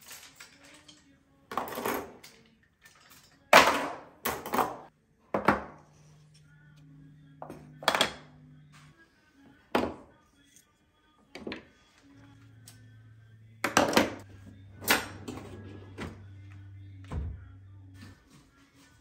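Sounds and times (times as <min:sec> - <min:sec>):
cutlery clattering into organiser: 0:00.0 - 0:04.9.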